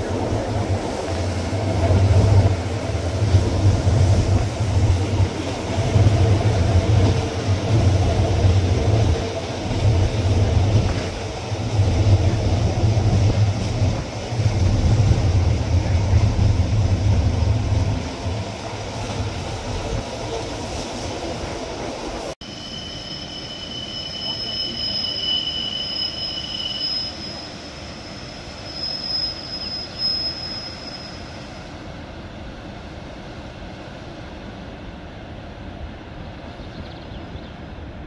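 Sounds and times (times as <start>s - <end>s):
wind noise: 0.0s - 22.3s
train carriage rumbling: 0.0s - 22.4s
distant train wheels squealing: 22.4s - 31.8s.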